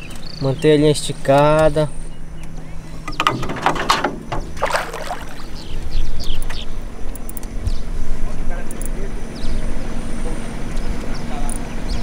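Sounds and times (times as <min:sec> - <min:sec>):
fish splashing in water: 0:04.6 - 0:05.9.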